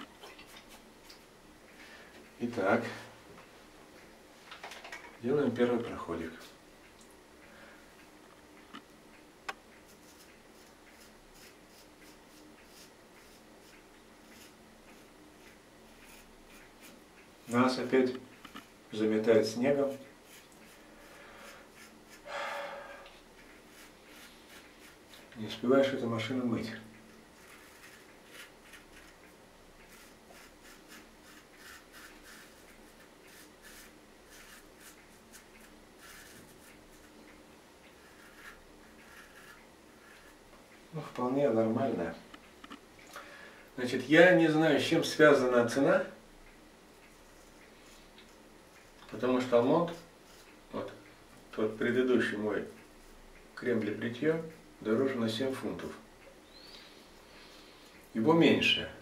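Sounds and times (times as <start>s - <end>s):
razor scraping stubble: 9.7s - 22.3s, 23.2s - 40.6s.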